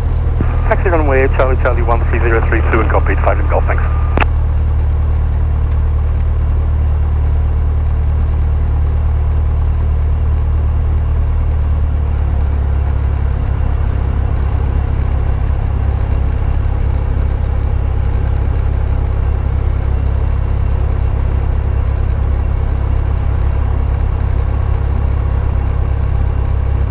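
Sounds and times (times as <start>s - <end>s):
airplane piston engine droning: 0.1s - 4.2s.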